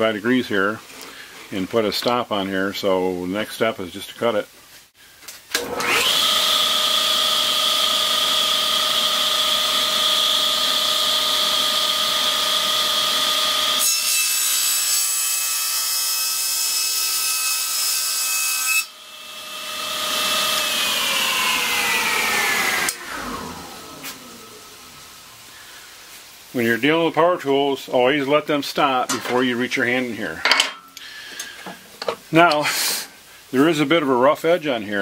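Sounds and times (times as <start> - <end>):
saw winding down: 5.6 - 13.9, 19.2 - 25.5
table saw running: 5.6 - 15.8, 18.6 - 25.3
saw blade cutting board: 5.6 - 25.0.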